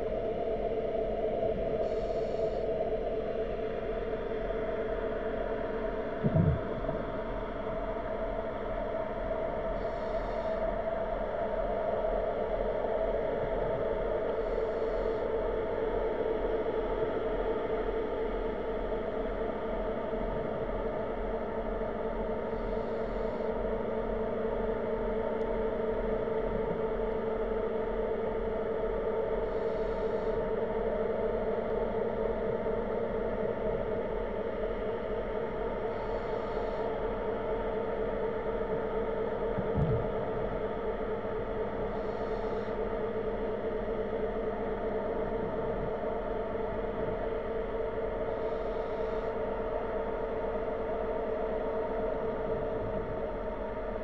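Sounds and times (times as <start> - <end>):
underwater machinery hum: 0.0 - 54.0
soft low knock: 39.6 - 40.1.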